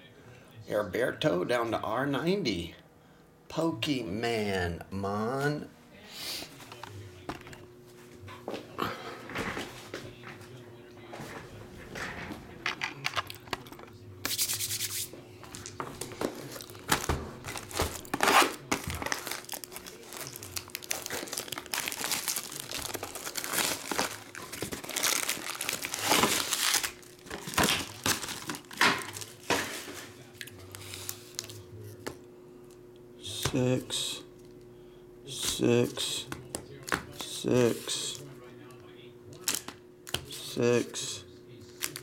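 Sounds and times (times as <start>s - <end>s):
foil packs rustling: 16.0s - 31.6s, 41.7s - 42.0s
plastic wrap tearing and crinkling: 16.3s - 30.0s, 39.4s - 40.2s, 41.7s - 42.0s.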